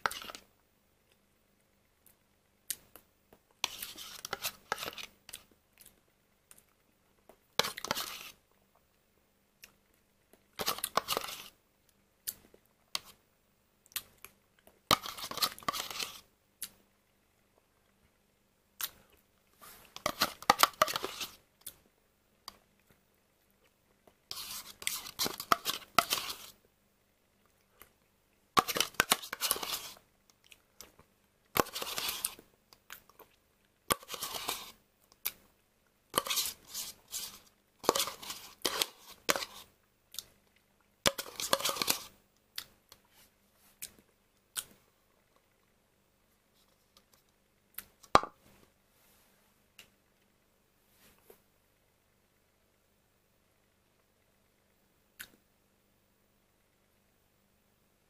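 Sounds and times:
spoon scraping plastic cup: 0.0s - 0.4s, 3.6s - 5.1s, 7.6s - 8.4s, 10.6s - 11.6s, 14.9s - 16.3s, 19.6s - 21.4s, 24.3s - 26.6s, 28.6s - 30.0s, 31.6s - 32.4s, 33.9s - 34.8s, 36.2s - 39.7s, 41.1s - 42.1s.

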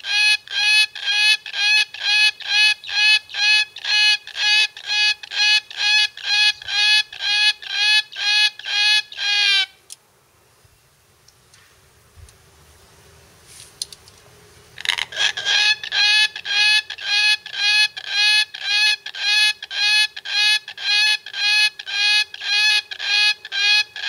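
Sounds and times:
cockatoo buzzy calls: 0.0s - 9.8s, 14.8s - 24.0s.

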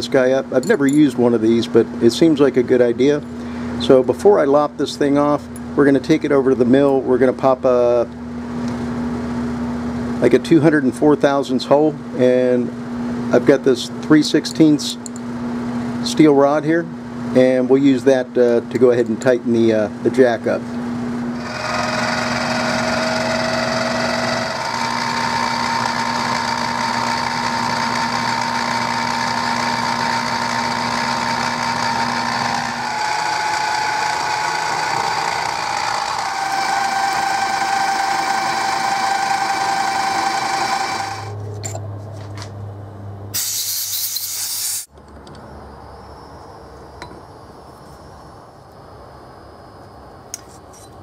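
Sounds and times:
milling machine drilling whine: 21.4s - 41.4s.

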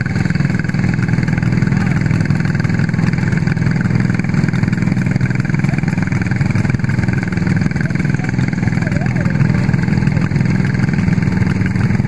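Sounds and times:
kart engine idling: 0.0s - 12.0s
other kart engines running: 0.0s - 12.0s.

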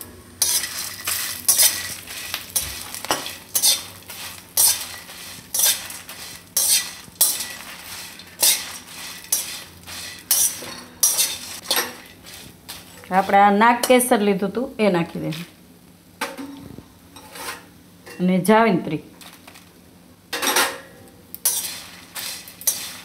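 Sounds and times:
spatula scraping metal pan: 0.4s - 13.5s, 17.2s - 17.7s, 21.4s - 23.0s.

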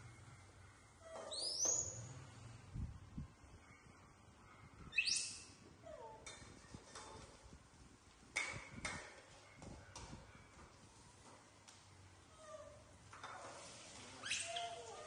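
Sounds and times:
monkeys squeaking: 14.1s - 15.0s.

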